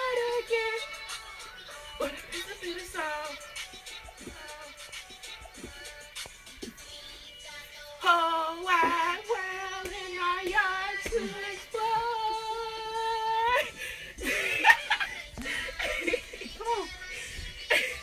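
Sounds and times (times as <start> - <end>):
woman singing in high voice: 0.0 - 13.8, 15.8 - 18.0
broken-up voices: 8.0 - 18.0.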